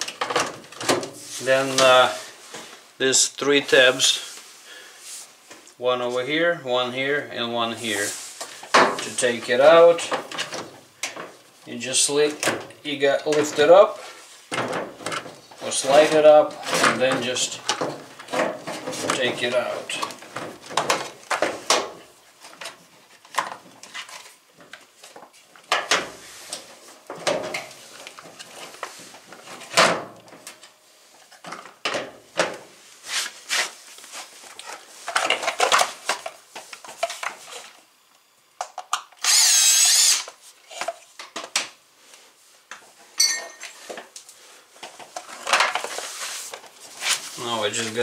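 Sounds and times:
cordless drill running: 0:39.2 - 0:40.3.

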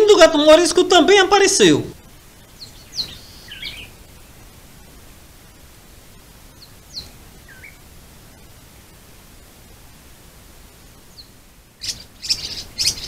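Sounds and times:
microphone hiss: 0:00.0 - 0:13.0
thin bird chirps: 0:02.4 - 0:04.0, 0:11.1 - 0:13.0.

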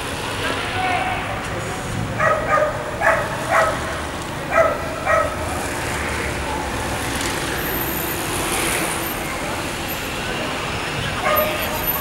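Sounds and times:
street background noise: 0:00.0 - 0:12.0
dog barking in high yaps: 0:02.2 - 0:03.8, 0:04.5 - 0:05.4, 0:11.2 - 0:11.6.

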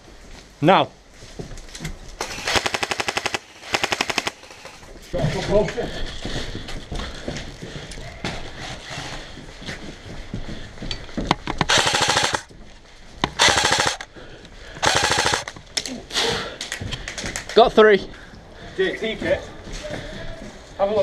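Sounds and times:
airsoft gun full-auto bursts: 0:02.2 - 0:04.9, 0:11.6 - 0:12.5, 0:13.3 - 0:14.1, 0:14.8 - 0:15.6.

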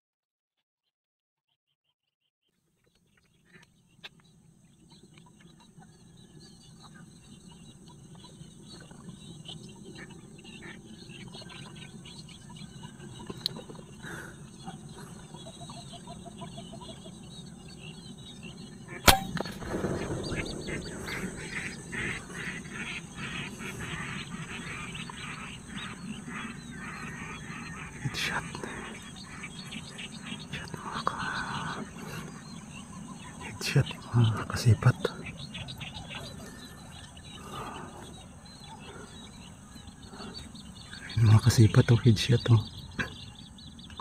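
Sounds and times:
ducks calling: 0:03.2 - 0:44.0
flock commotion: 0:19.0 - 0:25.4
air rifle shot: 0:19.1 - 0:23.4.

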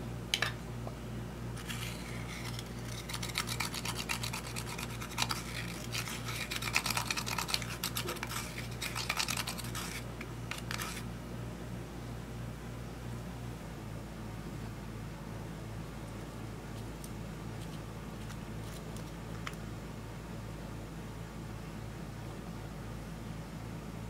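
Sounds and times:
tool scratching eyeshadow: 0:01.6 - 0:11.0.

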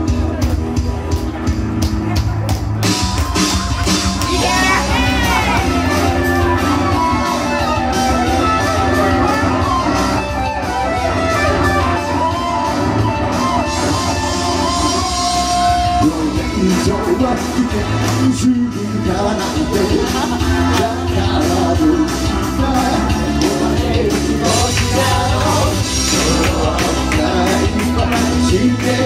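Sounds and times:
rock backing with bass and drums: 0:00.0 - 0:29.0
electric guitar solo: 0:03.8 - 0:15.8.

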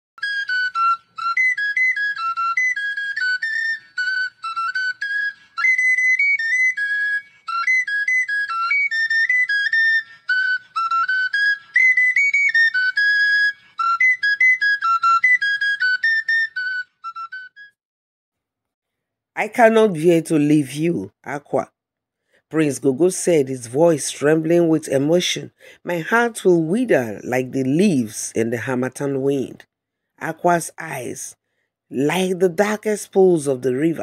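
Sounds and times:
flute-like melody: 0:00.2 - 0:17.8.

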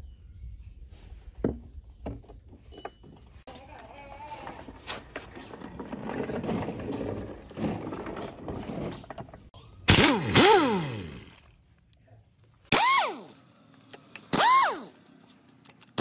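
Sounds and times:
pneumatic impact wrench bursts: 0:09.9 - 0:11.4, 0:12.7 - 0:13.4, 0:14.3 - 0:15.0
air motor spinning down: 0:14.3 - 0:15.0.

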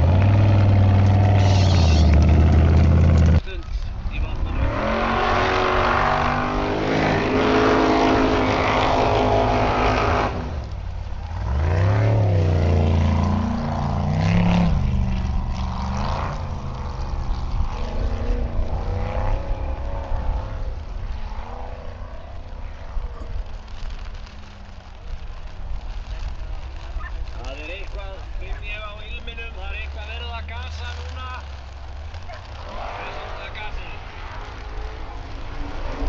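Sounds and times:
buggy engine revving: 0:00.0 - 0:36.0.

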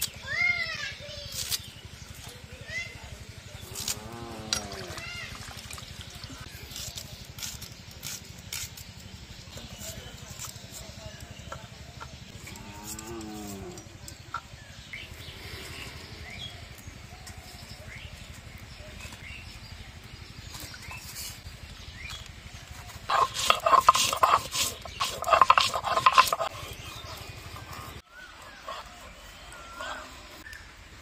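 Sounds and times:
stone grinding on board: 0:23.1 - 0:28.0.

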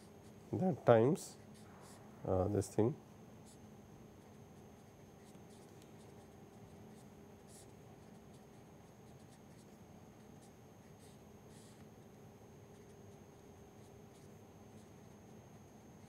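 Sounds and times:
faint steady hum: 0:00.0 - 0:16.0
marker scratching on paper: 0:04.2 - 0:11.8.

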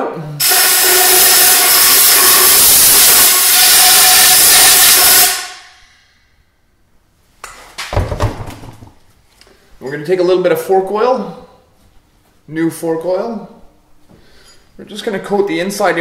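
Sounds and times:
compressed air hissing: 0:00.4 - 0:06.3.

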